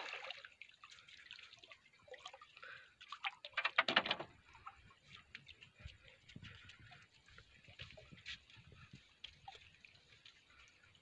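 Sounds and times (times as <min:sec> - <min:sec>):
water splashing on rocky shore: 0:00.0 - 0:00.6, 0:03.2 - 0:04.4.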